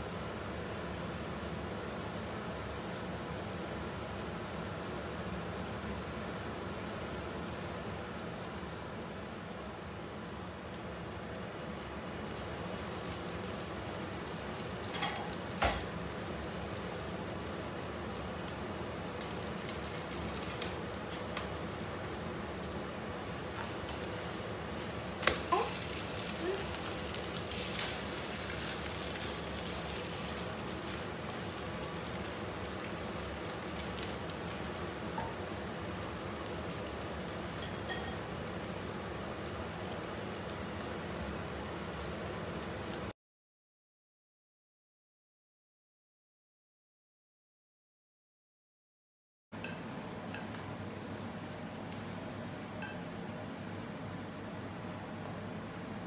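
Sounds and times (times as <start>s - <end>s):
omelette sizzling in wok: 9.0s - 43.1s.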